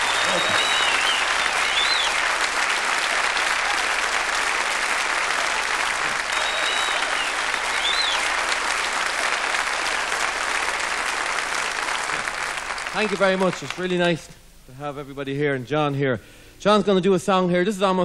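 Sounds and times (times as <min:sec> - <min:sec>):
shrill whistles: 0:00.0 - 0:02.3, 0:06.2 - 0:08.3
audience applauding: 0:00.0 - 0:14.2.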